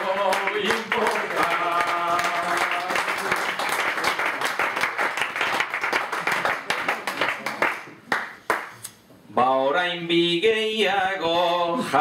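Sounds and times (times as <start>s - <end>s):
audience clapping: 0.0s - 8.8s.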